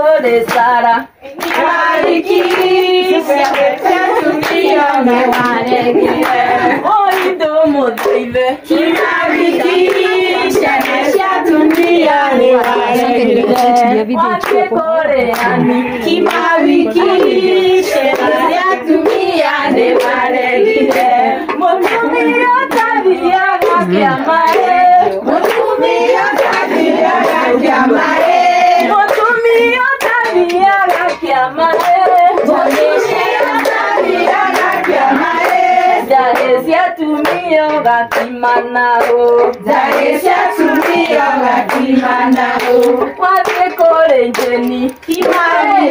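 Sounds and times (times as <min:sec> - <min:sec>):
women singing in chorus: 0:00.0 - 0:45.9
hand clapping in time: 0:00.2 - 0:45.9.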